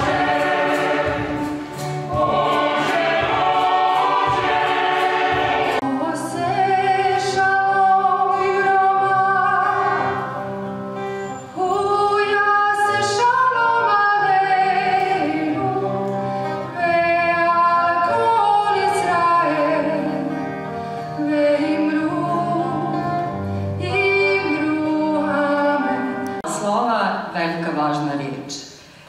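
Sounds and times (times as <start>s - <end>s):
woman singing slow melody: 5.8s - 9.9s, 11.5s - 26.4s.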